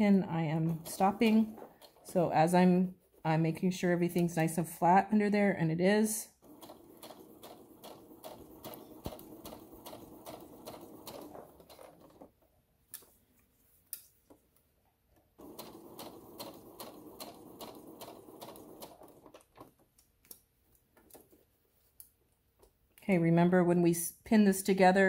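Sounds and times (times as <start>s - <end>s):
sewing machine stitching: 0.5s - 2.8s, 6.3s - 12.4s, 15.4s - 19.8s.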